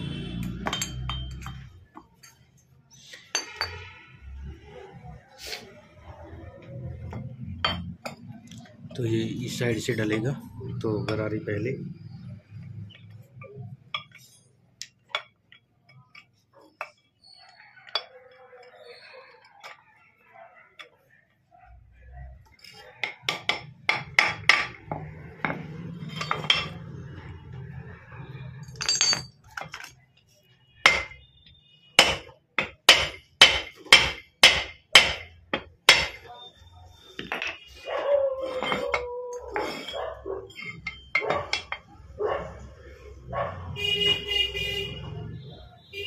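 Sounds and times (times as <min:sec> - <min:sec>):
hammer on steel: 0:32.0 - 0:36.2.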